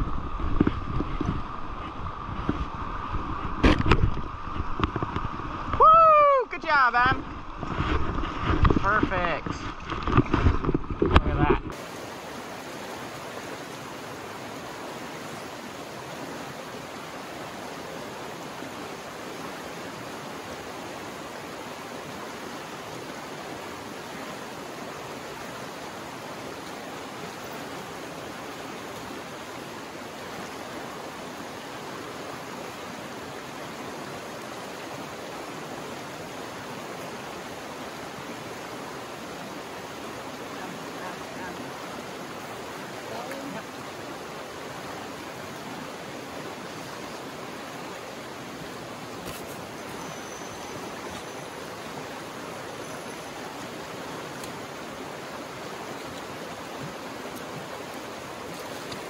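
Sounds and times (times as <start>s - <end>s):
river rushing over rocks: 0.0s - 59.0s.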